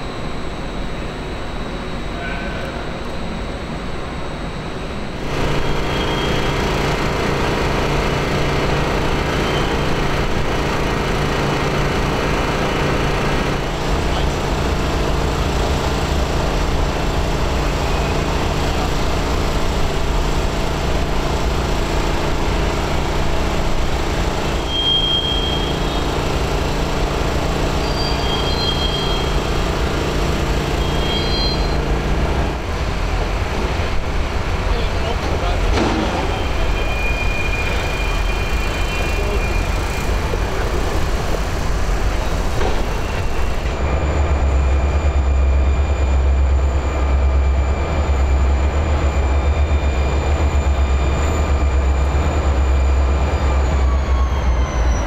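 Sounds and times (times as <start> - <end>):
diesel locomotive engines droning: 0.0 - 55.0
short high-pitched squeals: 5.4 - 6.7, 24.5 - 26.3, 27.7 - 29.8, 30.5 - 32.0, 36.1 - 40.3, 42.6 - 43.7.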